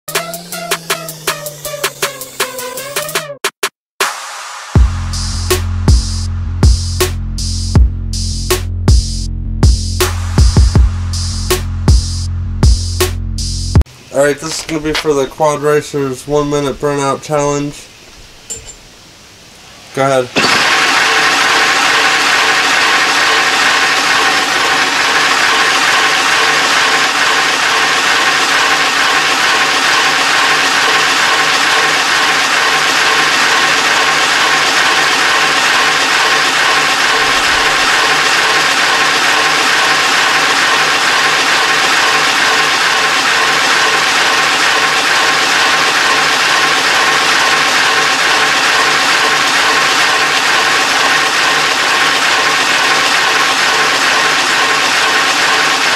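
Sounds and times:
toy car electric motors whirring: 20.4 - 55.9.

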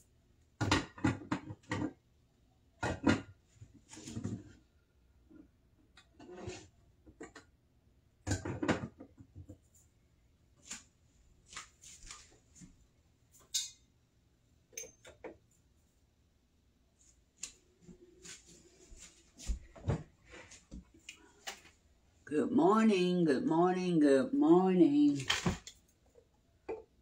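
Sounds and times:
kitchen knocks and clatter: 0.6 - 2.0, 2.8 - 3.4, 8.2 - 9.6.

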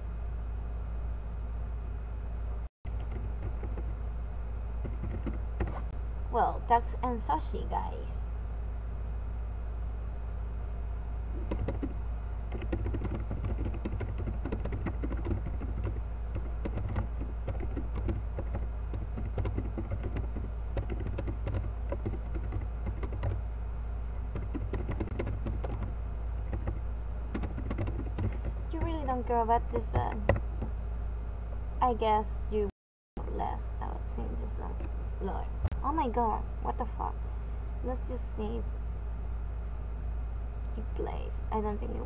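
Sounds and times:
low hum: 0.0 - 42.0
keyboard typing clicks: 4.8 - 5.8, 11.4 - 23.4, 24.3 - 25.9, 26.5 - 29.0, 29.8 - 30.7.

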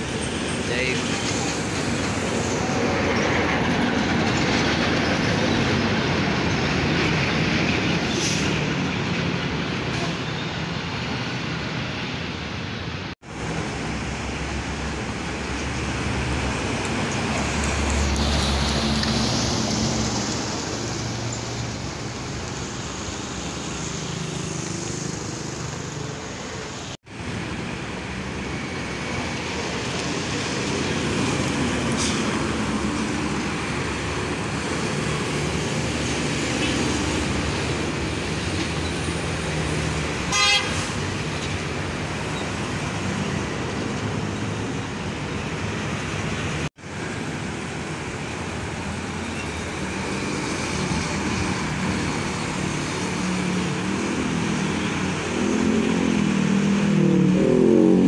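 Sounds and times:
trucks passing: 0.0 - 58.0
motorcycles passing: 48.6 - 58.0.

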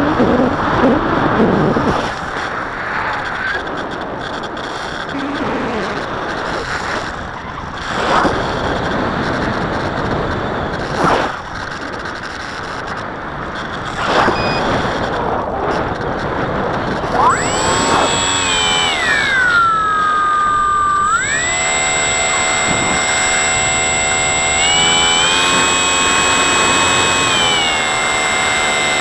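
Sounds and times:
electric motor whine: 1.8 - 16.2, 16.8 - 29.0
constant high-pitched tone: 17.0 - 29.0.

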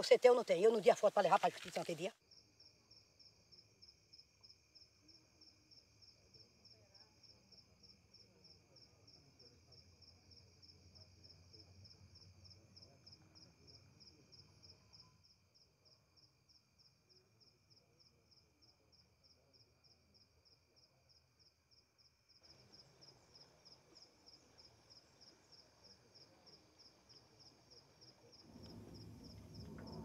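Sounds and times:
insects chirping: 0.0 - 30.0
faint low rumble: 28.5 - 30.0.

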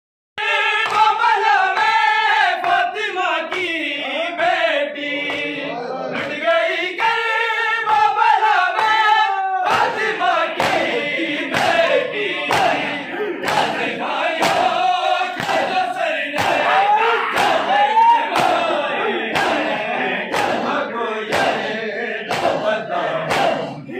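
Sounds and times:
men chanting in unison: 0.4 - 23.9
hands striking bare chests: 16.4 - 16.7, 18.3 - 18.6, 22.3 - 22.7, 23.3 - 23.6.

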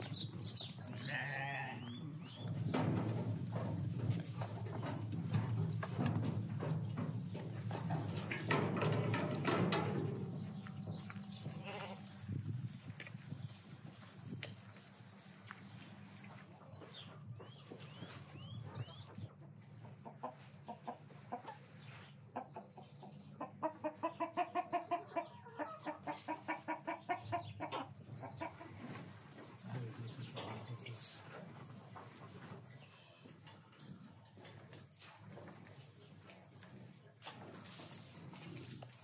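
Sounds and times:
hens clucking: 16.2 - 29.4.

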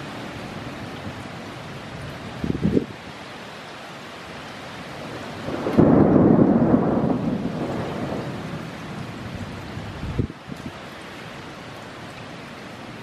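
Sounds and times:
rain hissing: 0.0 - 13.0
thunder rumbling: 5.1 - 10.4.

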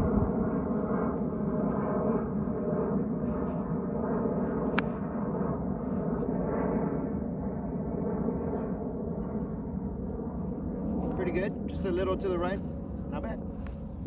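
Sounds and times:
aircraft drone overhead: 0.0 - 14.0
golf club striking ball: 4.6 - 5.0.

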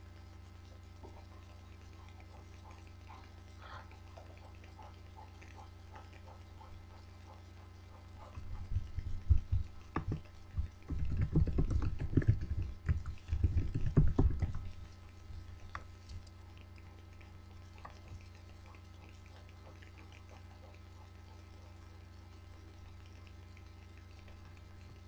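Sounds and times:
electrical hum: 0.0 - 25.0
thumps and knocks on microphone: 8.7 - 14.7.

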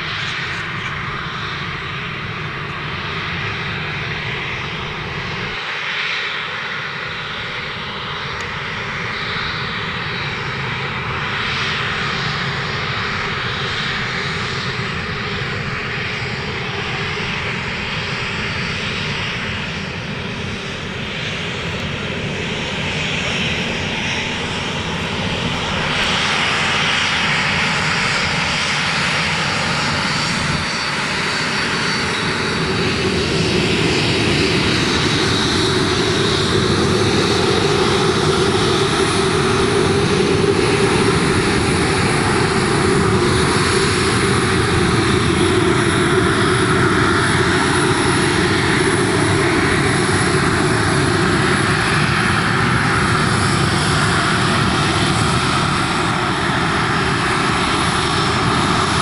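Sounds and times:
jet engines running: 0.0 - 59.0.

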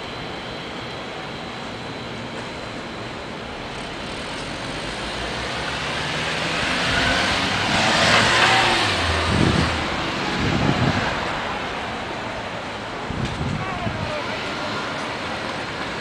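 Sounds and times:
car passing by: 4.2 - 12.4.

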